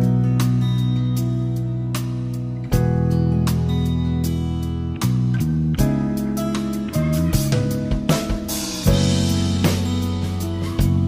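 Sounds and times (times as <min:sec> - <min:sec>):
instrumental music with drums and guitar: 0:00.0 - 0:11.0.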